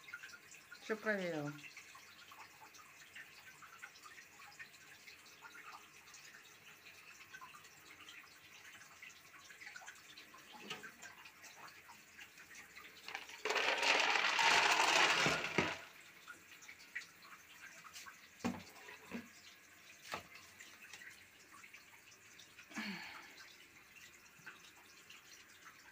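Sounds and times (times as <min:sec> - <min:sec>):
cat litter pouring into plastic tray: 0:13.1 - 0:15.9.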